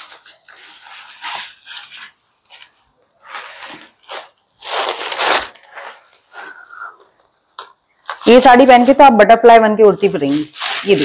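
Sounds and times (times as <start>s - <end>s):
fabric rustling and swishing: 10.0s - 11.0s.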